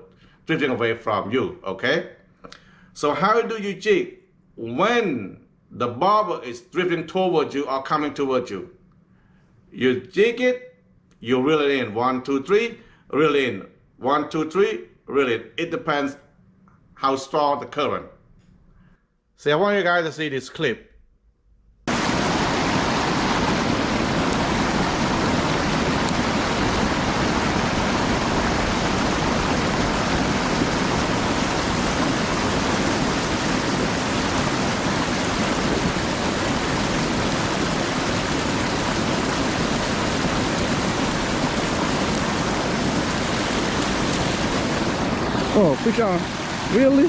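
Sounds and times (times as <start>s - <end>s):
river water rushing: 21.9s - 47.0s.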